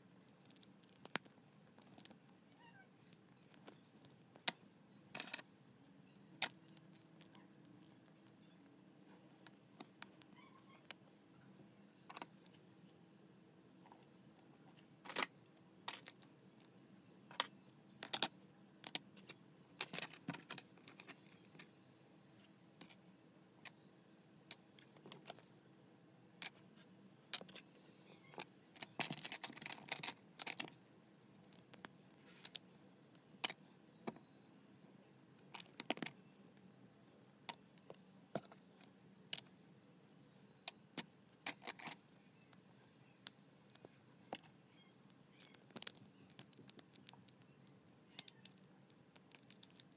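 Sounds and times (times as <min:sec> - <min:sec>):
plastic bricks clicking and clattering: 0:28.8 - 0:30.8, 0:48.2 - 0:49.9.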